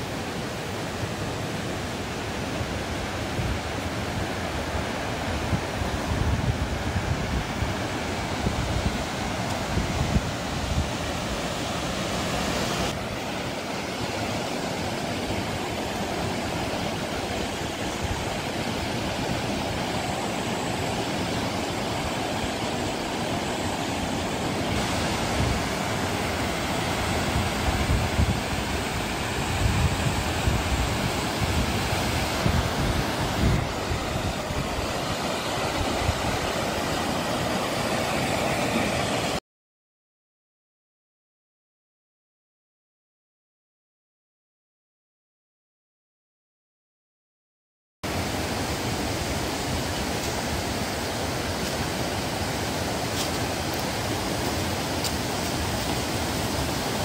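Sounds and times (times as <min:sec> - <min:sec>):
stream rushing over boulders: 0:00.0 - 0:39.4, 0:48.1 - 0:57.0
wind buffeting microphone: 0:05.3 - 0:11.6, 0:24.8 - 0:37.8.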